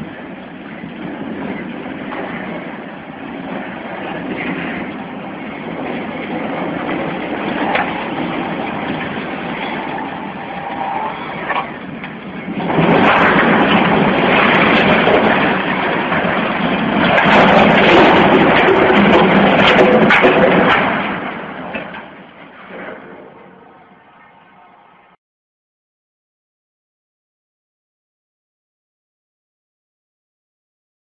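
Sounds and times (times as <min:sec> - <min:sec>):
steady rumble: 0:00.0 - 0:25.2
chimney collapsing crash: 0:12.6 - 0:23.4.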